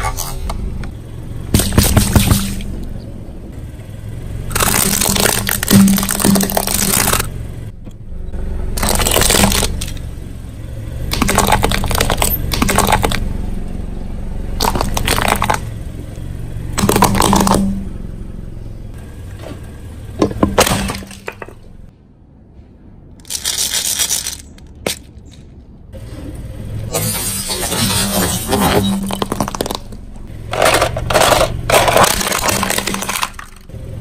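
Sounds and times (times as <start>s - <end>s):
tyre crushing chestnut shells: 4.5s - 7.3s, 8.8s - 10.0s, 11.1s - 13.2s, 14.6s - 15.7s, 16.8s - 17.7s, 28.5s - 33.7s.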